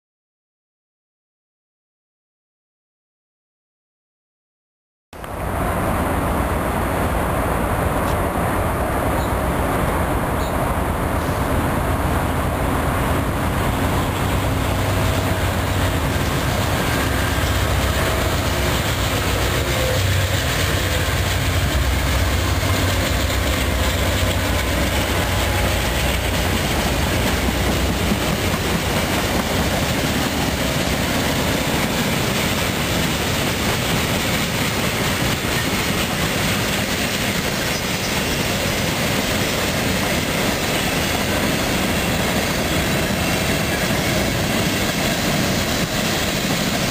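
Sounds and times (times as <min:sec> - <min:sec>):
diesel locomotive rumble: 0:05.2 - 0:46.9
train wheels clacking over rail joints: 0:13.9 - 0:46.9.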